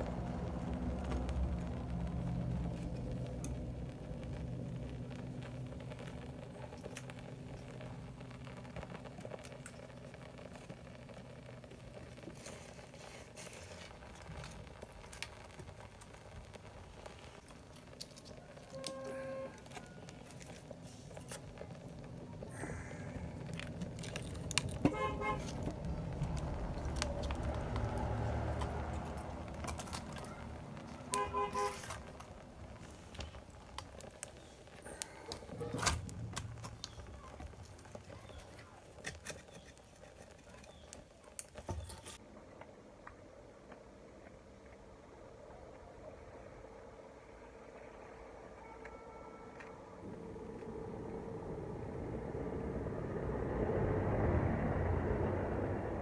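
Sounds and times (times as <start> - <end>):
vehicle rumbling past: 0.0 - 9.0, 20.7 - 38.4, 49.3 - 56.0
wood fire crackling and popping: 0.0 - 56.0.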